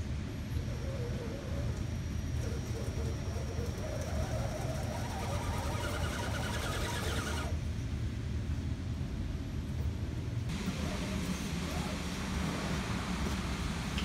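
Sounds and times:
electric motor whining: 3.4 - 7.6.

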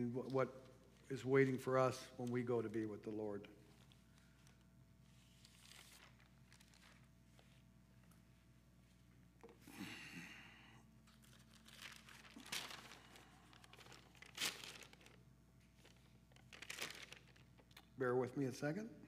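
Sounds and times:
paper rustling: 3.7 - 7.7, 11.1 - 17.9.

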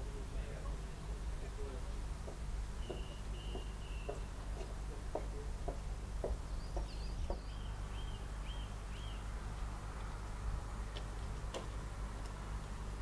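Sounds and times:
small bird chirping: 2.8 - 4.4, 6.4 - 9.3.

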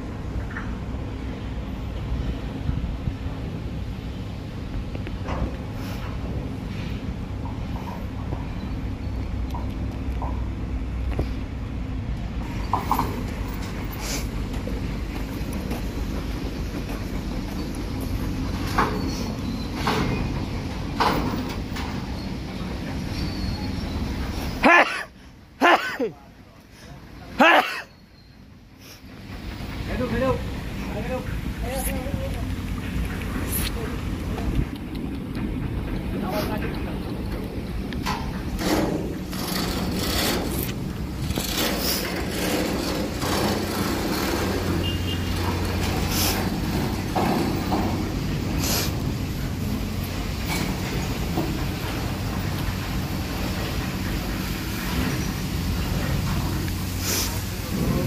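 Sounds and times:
machinery engine rumble: 0.0 - 58.0
hissing bursts: 38.5 - 58.0.

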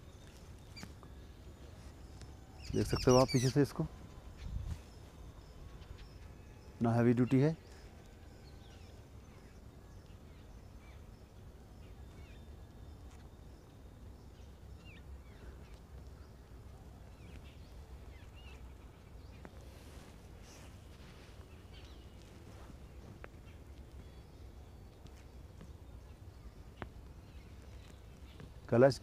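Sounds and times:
bird chirps: 0.0 - 16.3.

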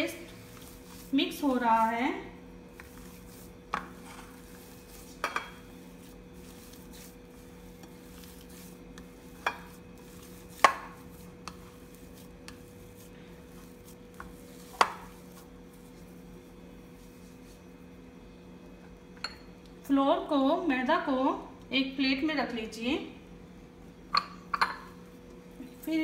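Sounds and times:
hand kneading mashed potato: 0.0 - 18.1
steady low hum: 0.0 - 22.0.

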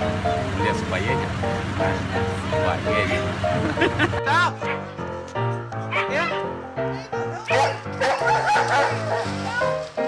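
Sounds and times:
background music with held notes: 0.0 - 10.0
dog barking excitedly: 4.6 - 4.9, 5.9 - 6.5, 7.4 - 9.3.

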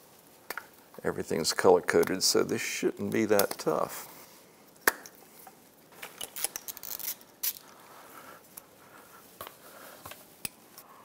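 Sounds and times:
wires rustling: 0.0 - 10.9
plastic connectors clicking: 3.1 - 3.7.

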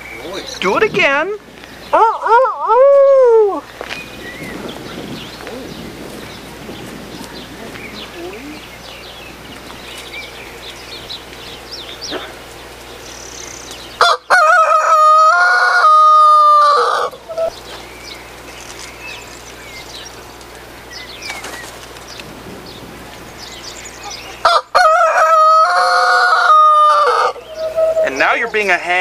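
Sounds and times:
rooster crowing: 1.9 - 3.6, 14.0 - 17.5, 24.0 - 28.4
short bird calls: 7.2 - 14.1, 27.1 - 28.6.

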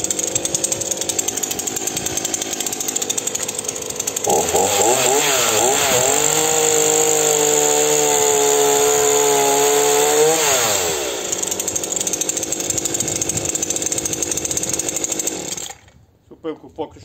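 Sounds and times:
chainsaw idling: 0.0 - 15.9
chainsaw cutting log: 0.0 - 16.0.

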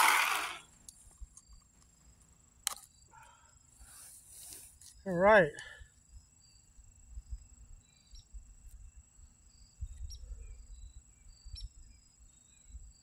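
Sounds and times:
bird chirps: 7.8 - 9.0.

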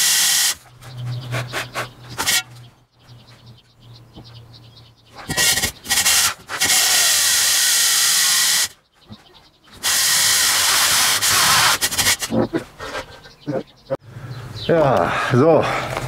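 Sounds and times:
drill grinding through masonry: 5.3 - 8.7, 9.8 - 12.3.

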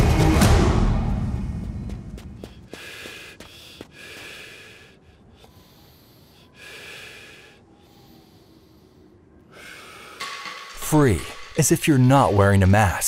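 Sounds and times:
person breathing heavily: 2.4 - 10.5.

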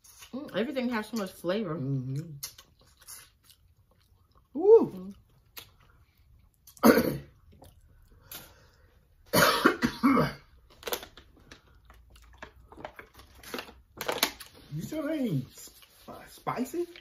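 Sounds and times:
man coughing hard: 6.8 - 7.3, 9.3 - 10.5.

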